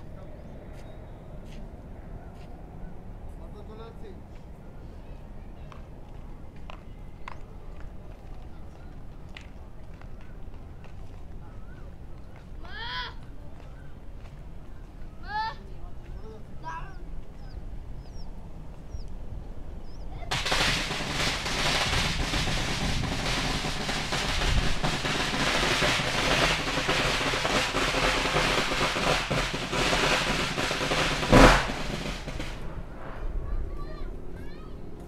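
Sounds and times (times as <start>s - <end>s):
rapid crackle of sharp pops: 20.3s - 32.9s
loud bang: 20.3s - 33.9s.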